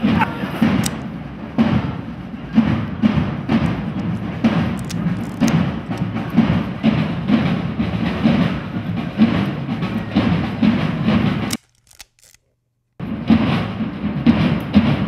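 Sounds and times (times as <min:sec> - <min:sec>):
crowd noise: 0:00.0 - 0:11.6
marching drum beating: 0:00.0 - 0:12.3, 0:13.0 - 0:15.0.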